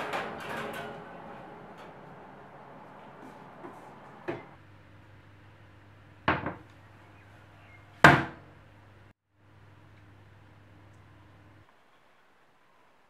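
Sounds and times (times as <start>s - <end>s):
metal tray clanking on oven rack: 0.0s - 2.8s.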